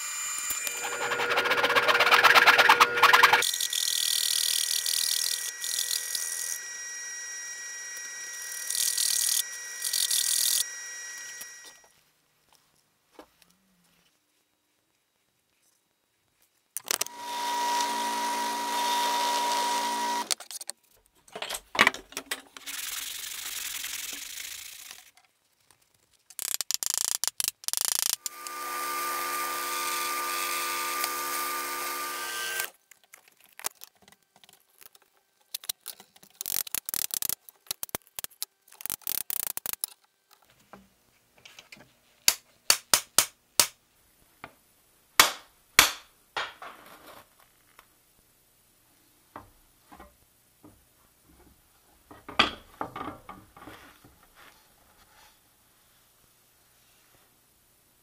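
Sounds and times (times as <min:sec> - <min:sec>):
drill press motor running: 0:00.4 - 0:03.4, 0:17.1 - 0:20.3
clicks and knocks of wood and metal: 0:20.3 - 0:22.6.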